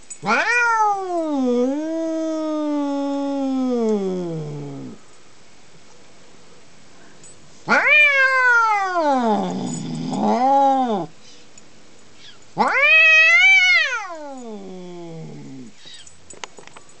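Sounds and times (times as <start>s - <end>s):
cat yowling: 0.2s - 5.0s, 7.7s - 11.1s, 12.6s - 16.0s.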